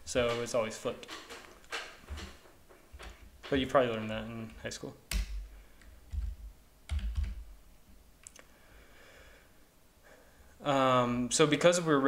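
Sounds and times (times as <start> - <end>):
keyboard key clicks: 5.1 - 7.4.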